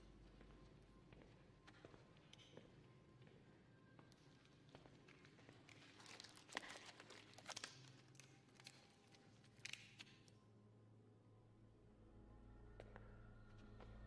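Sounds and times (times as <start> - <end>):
rubber gloves stretching and clicking: 5.0 - 10.3.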